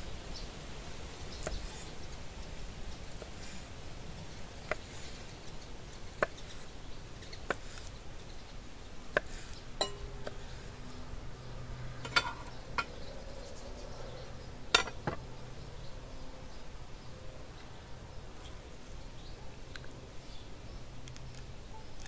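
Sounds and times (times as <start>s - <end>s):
utensils clinking against dishes: 9.8s - 10.4s, 12.0s - 13.0s, 14.7s - 15.2s.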